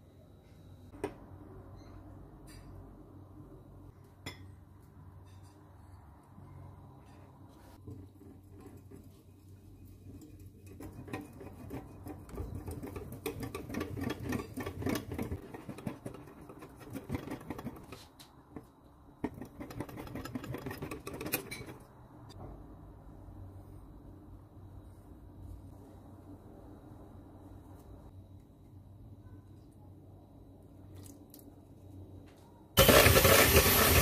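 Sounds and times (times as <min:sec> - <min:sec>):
whisk scraping glass bowl: 0:07.8 - 0:18.0, 0:19.2 - 0:21.8.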